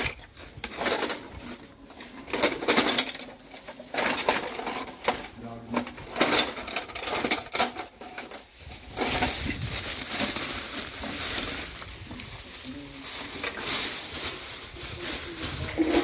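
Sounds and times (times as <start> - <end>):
plastic toy train cars clacking: 0.0 - 12.4, 13.1 - 14.5, 15.2 - 16.0
plastic bag rustling: 0.0 - 16.0.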